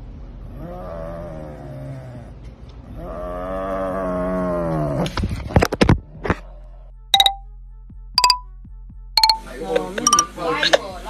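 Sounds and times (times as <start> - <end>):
wild cat moaning growls: 0.4 - 5.2.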